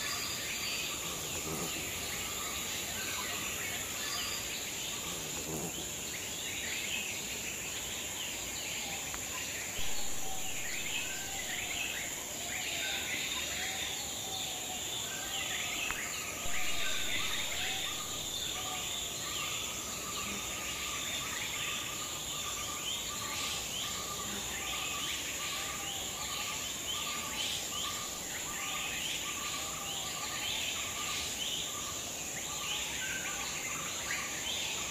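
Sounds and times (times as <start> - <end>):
high-pitched insect drone: 0.0 - 6.0, 9.2 - 34.9
birds chirping: 0.0 - 6.3, 9.2 - 13.4, 14.9 - 25.4.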